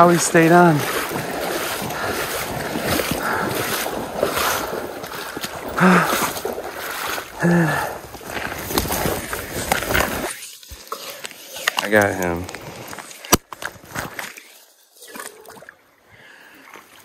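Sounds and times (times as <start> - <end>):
water splashing and sloshing: 0.0 - 17.0
wind: 0.0 - 17.0
person grunting: 5.8 - 6.3, 7.4 - 8.0.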